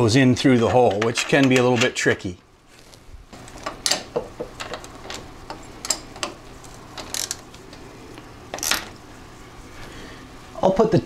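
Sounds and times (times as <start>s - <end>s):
ratchet wrench clicking: 7.0s - 7.4s.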